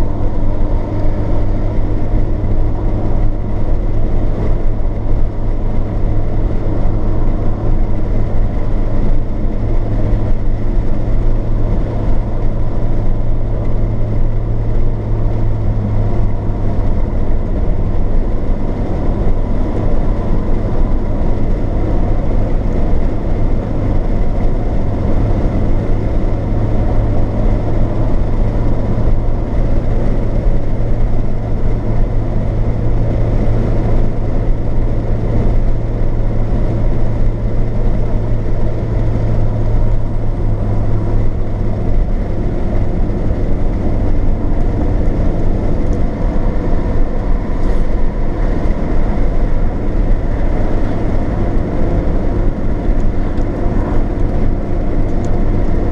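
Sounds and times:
car road and engine noise: 0:00.0 - 0:55.9
low drone: 0:00.0 - 0:55.9.

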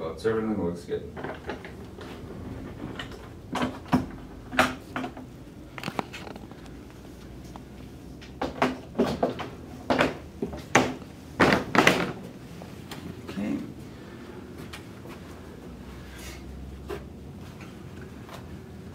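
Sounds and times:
window sash knocking and clicking: 0:08.3 - 0:12.2.

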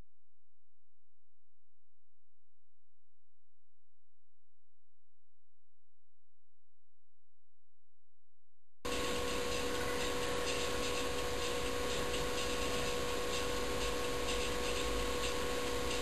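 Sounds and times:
constant whining tone: 0:08.9 - 0:16.0
steady hiss: 0:08.9 - 0:16.0.

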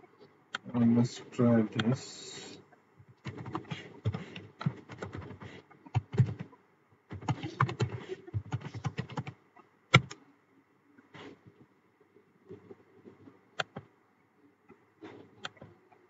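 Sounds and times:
computer keyboard typing: 0:03.2 - 0:06.5, 0:07.1 - 0:10.2.

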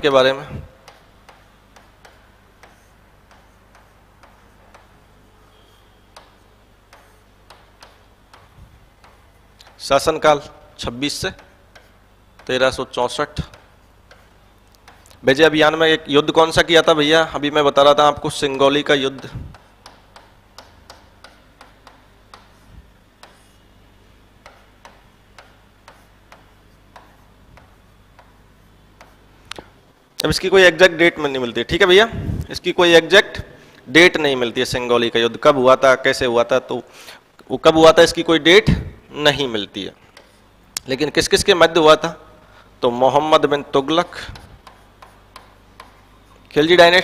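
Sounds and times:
taps and clicks writing on board: 0:00.8 - 0:09.9, 0:11.3 - 0:12.7, 0:13.3 - 0:15.2, 0:18.5 - 0:23.7, 0:24.4 - 0:29.7, 0:40.1 - 0:40.4, 0:44.3 - 0:46.2.

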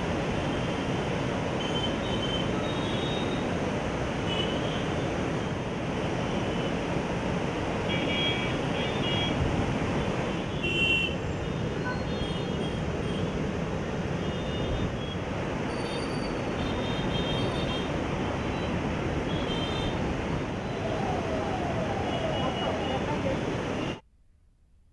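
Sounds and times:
flood water rushing: 0:11.6 - 0:24.0.

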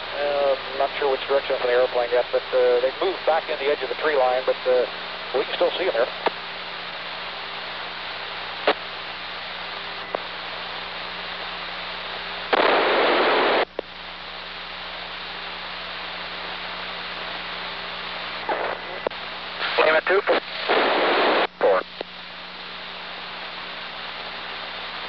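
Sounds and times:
radio hiss and hum: 0:00.0 - 0:25.0
static burst: 0:00.0 - 0:25.0.

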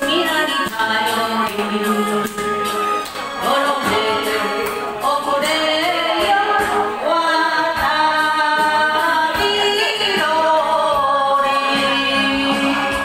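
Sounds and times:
karaoke backing track: 0:00.0 - 0:13.0
woman singing into microphone: 0:00.0 - 0:13.0.

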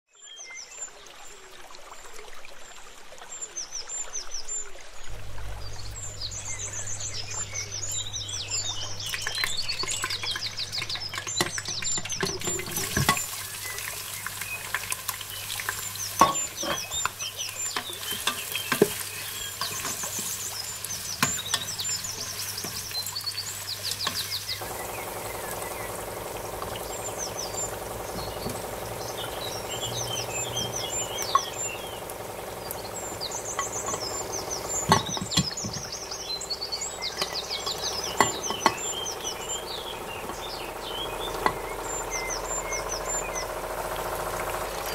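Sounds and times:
birds chirping: 0:03.3 - 0:44.9
steady low hum: 0:04.8 - 0:11.2, 0:24.3 - 0:44.9
onions stirred in oil: 0:11.9 - 0:27.1.

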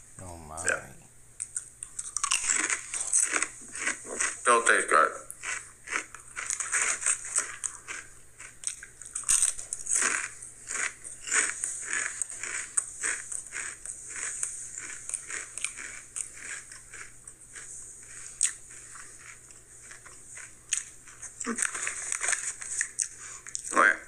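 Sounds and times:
person chewing crunchy chips: 0:01.4 - 0:23.9.

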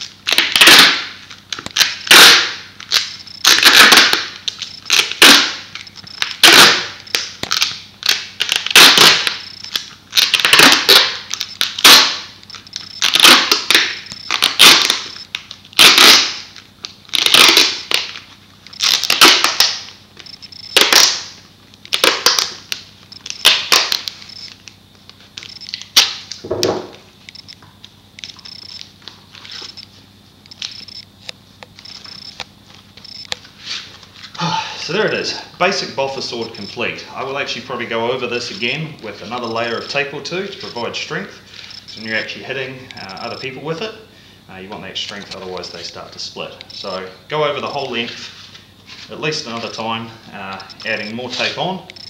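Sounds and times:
duct tape ripping off roll: 0:00.0 - 0:12.3, 0:13.0 - 0:20.0, 0:20.8 - 0:24.8.

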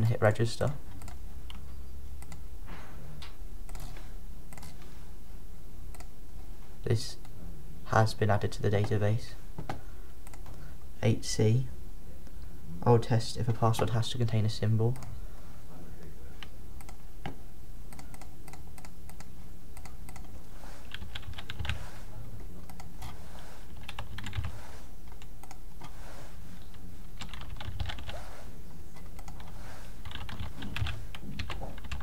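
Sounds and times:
low background hum: 0:00.0 - 0:32.0
computer keyboard typing: 0:00.9 - 0:01.6, 0:02.2 - 0:02.4, 0:03.7 - 0:03.9, 0:16.4 - 0:17.0, 0:17.9 - 0:21.8, 0:22.6 - 0:25.9, 0:26.7 - 0:28.2, 0:29.0 - 0:32.0.

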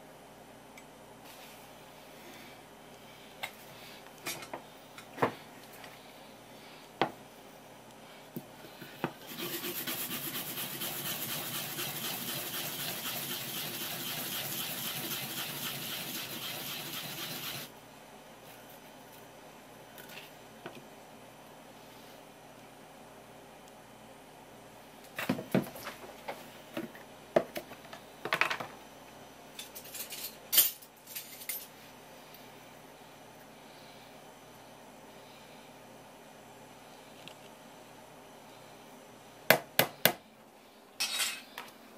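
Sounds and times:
root grating on grater: 0:09.2 - 0:17.7.

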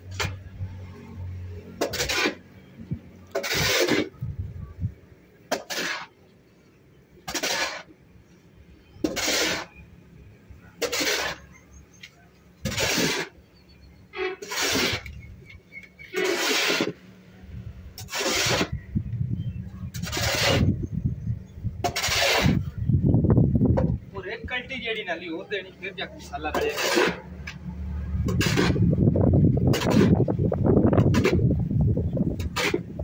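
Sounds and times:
shovel scraping mortar and concrete: 0:00.0 - 0:04.6, 0:05.5 - 0:06.3, 0:07.2 - 0:08.0, 0:09.0 - 0:09.8, 0:10.6 - 0:13.4, 0:14.2 - 0:17.1, 0:17.9 - 0:18.9, 0:19.6 - 0:20.9, 0:21.7 - 0:22.8, 0:26.2 - 0:33.0.

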